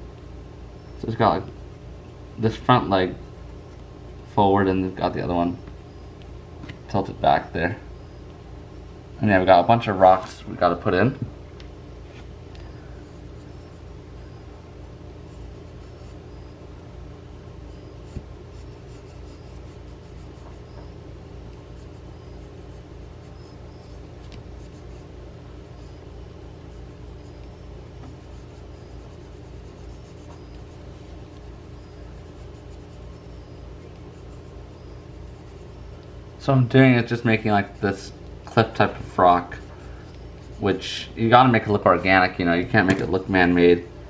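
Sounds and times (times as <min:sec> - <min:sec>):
steady low hum: 0:00.0 - 0:44.0
pencil scratching on paper: 0:13.0 - 0:16.6, 0:17.6 - 0:20.8, 0:21.5 - 0:36.0, 0:38.7 - 0:40.9
sharp click: 0:42.8 - 0:43.1.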